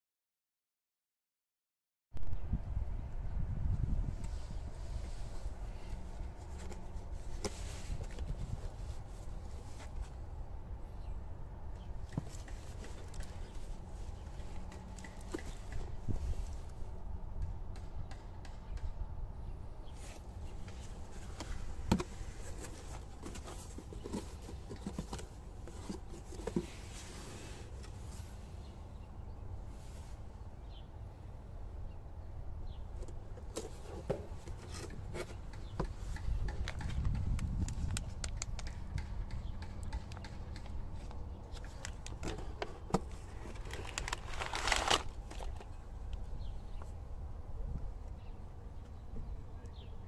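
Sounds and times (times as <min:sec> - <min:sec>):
packaging clicks and rustles: 0:40.0 - 0:45.8.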